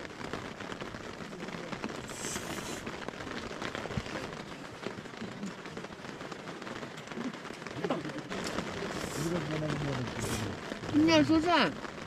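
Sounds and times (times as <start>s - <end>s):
rain pattering on tent fabric: 0.0s - 12.0s
short hiss: 2.1s - 2.9s.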